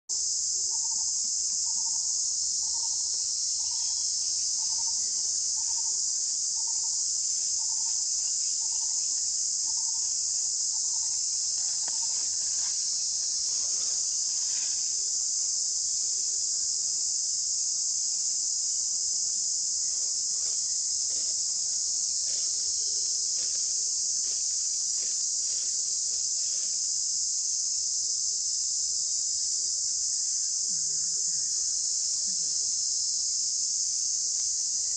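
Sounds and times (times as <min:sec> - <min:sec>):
insect chorus drone: 0:00.1 - 0:34.9.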